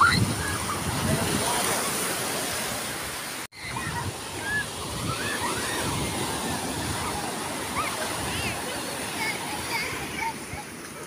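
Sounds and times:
children shouting: 0:00.0 - 0:01.0, 0:03.6 - 0:10.8
surf washing on pebble beach: 0:00.0 - 0:11.0.

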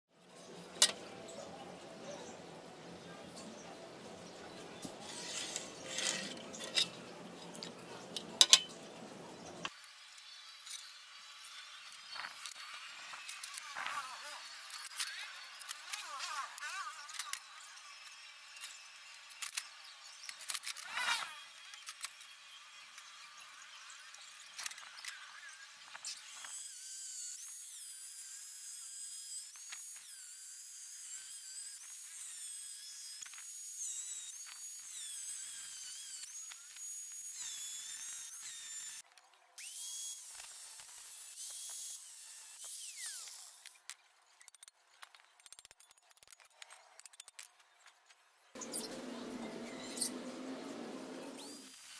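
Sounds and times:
angle grinder cutting metal: 0:04.8 - 0:07.7, 0:09.6 - 0:39.0, 0:39.6 - 0:43.8, 0:48.6 - 0:51.9
light knocks and scrapes: 0:04.8 - 0:08.7.

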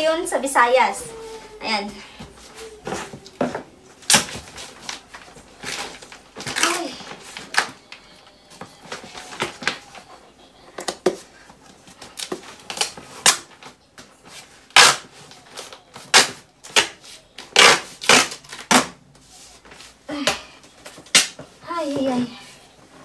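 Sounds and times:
duct tape ripping off roll: 0:14.7 - 0:15.1, 0:16.1 - 0:19.0.

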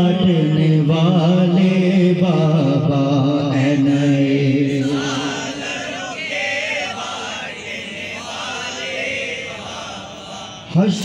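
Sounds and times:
men chanting devotional song: 0:00.0 - 0:11.0.

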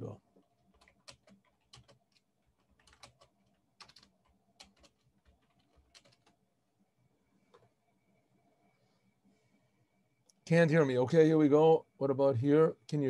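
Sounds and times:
typing on computer keyboard: 0:00.7 - 0:06.4.

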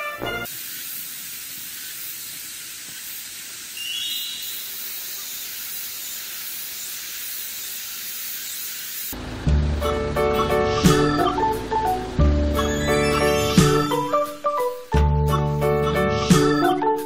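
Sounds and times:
steady high hiss: 0:00.0 - 0:14.6
bird chirping: 0:03.8 - 0:04.9.

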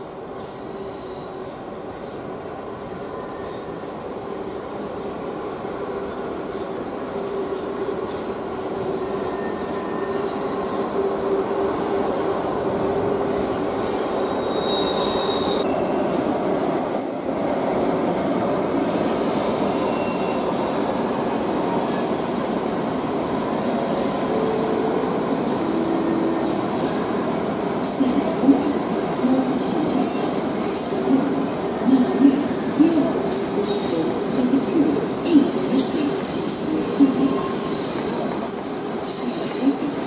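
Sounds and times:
high wheel squeals: 0:03.1 - 0:04.5, 0:11.7 - 0:18.2, 0:19.4 - 0:24.7, 0:36.6 - 0:40.0.

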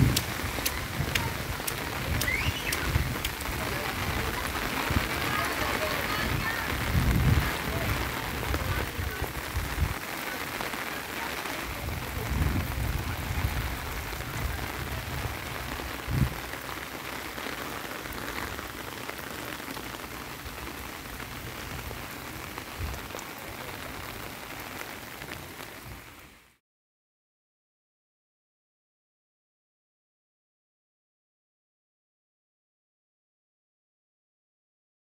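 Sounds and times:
heavy rain hissing: 0:00.0 - 0:26.6.

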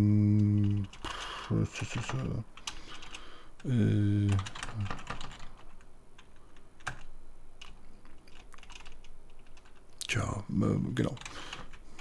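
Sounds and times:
typing on keyboard: 0:01.8 - 0:09.8.

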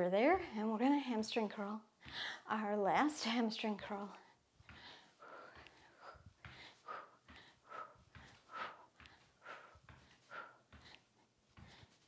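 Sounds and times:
woman breathing hard: 0:02.0 - 0:02.5, 0:04.2 - 0:12.0.

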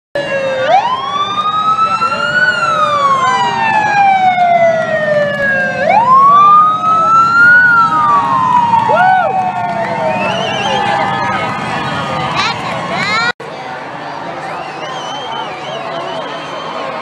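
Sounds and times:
siren wailing: 0:00.2 - 0:13.3
crowd noise: 0:00.2 - 0:17.0.

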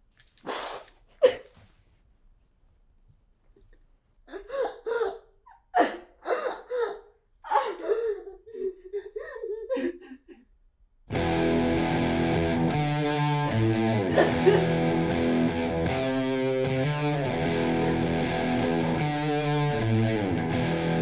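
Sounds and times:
woman sobbing and wailing: 0:04.3 - 0:10.5, 0:13.1 - 0:14.8
electric guitar: 0:11.1 - 0:21.0.

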